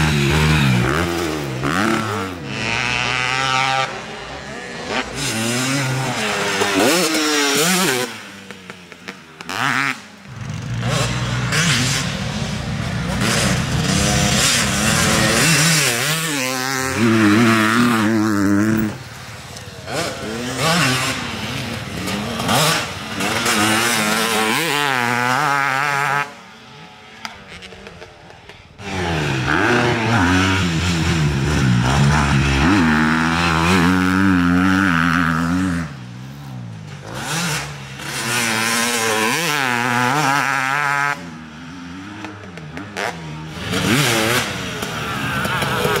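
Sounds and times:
dirt bikes revving: 0.0 - 46.0.

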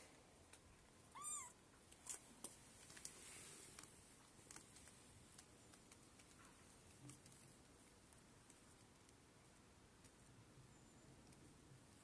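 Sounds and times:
kitten mewing: 1.1 - 1.6.

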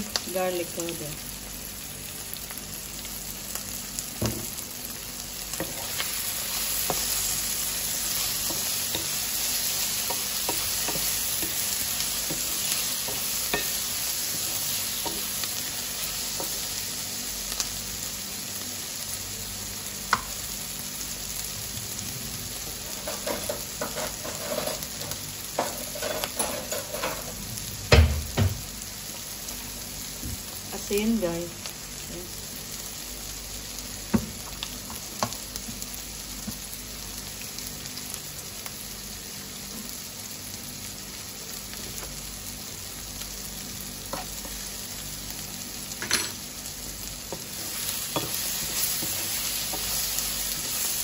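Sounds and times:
vegetables sizzling in a frying pan: 0.0 - 51.0
spatula scraping and tapping a pan: 10.0 - 13.8, 22.9 - 27.3, 47.3 - 50.9.

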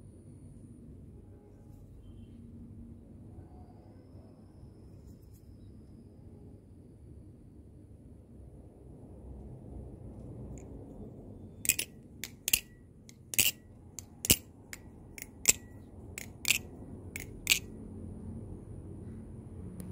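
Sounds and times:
butterfly knife metal clicks: 11.7 - 17.7.

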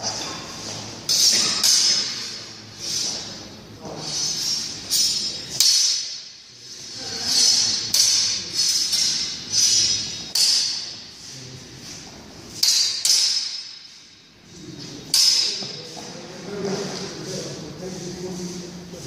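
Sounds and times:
swords clashing: 1.0 - 2.4, 4.2 - 6.4, 7.0 - 11.1, 12.5 - 14.2, 15.1 - 15.8.

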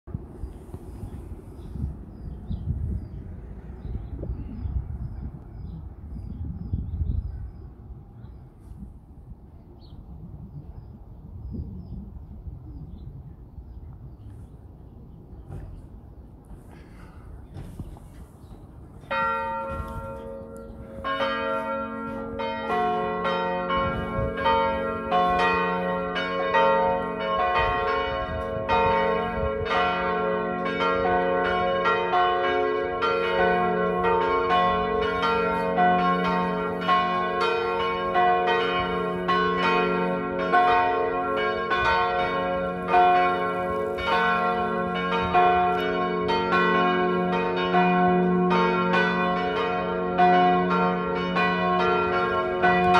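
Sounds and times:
church bells ringing: 18.8 - 52.9.

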